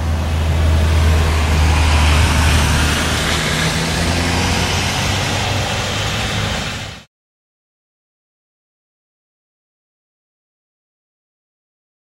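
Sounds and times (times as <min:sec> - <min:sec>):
engine rumble: 0:00.0 - 0:07.1
tyres hissing on wet road: 0:00.0 - 0:07.1.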